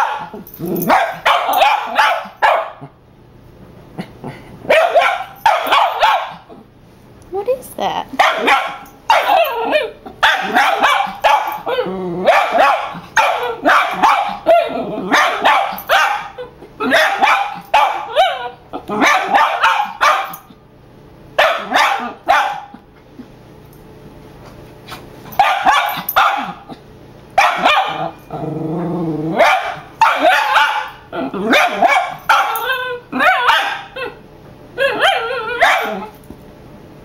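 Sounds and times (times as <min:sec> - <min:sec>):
small dog barking sharply: 0:00.9 - 0:02.8, 0:04.7 - 0:06.4, 0:08.2 - 0:09.6, 0:10.2 - 0:11.6, 0:12.3 - 0:16.3, 0:16.9 - 0:18.4, 0:19.0 - 0:20.5, 0:21.4 - 0:22.7, 0:25.4 - 0:26.7, 0:27.4 - 0:28.1, 0:29.4 - 0:31.0, 0:31.6 - 0:32.6, 0:33.2 - 0:33.9, 0:34.9 - 0:36.0.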